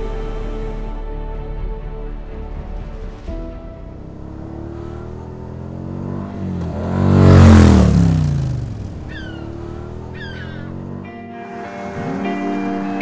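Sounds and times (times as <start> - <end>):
quad bike engine passing: 4.0 - 13.0.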